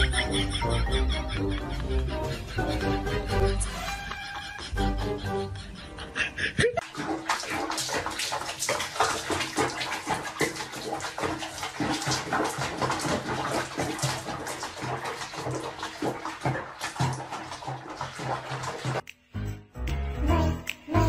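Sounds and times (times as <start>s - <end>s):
bath water splashing: 6.8s - 19.1s.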